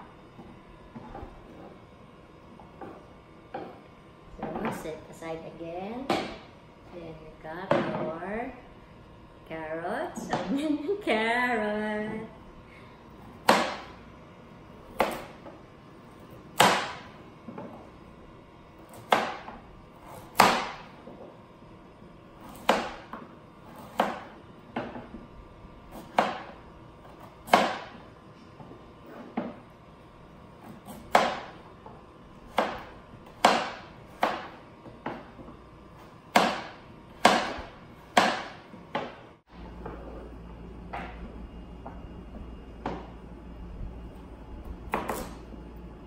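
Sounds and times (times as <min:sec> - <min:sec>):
knife chopping on cutting board: 0:13.3 - 0:14.0, 0:14.9 - 0:15.5, 0:16.6 - 0:17.8, 0:18.9 - 0:21.0, 0:22.4 - 0:25.1, 0:25.9 - 0:28.0, 0:30.6 - 0:31.6, 0:32.5 - 0:35.4, 0:36.0 - 0:39.2, 0:44.9 - 0:45.4.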